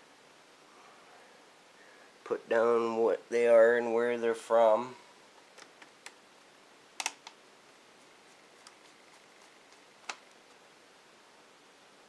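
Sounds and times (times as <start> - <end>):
small parts clicking on laptop: 7.0 - 7.4, 8.3 - 10.6.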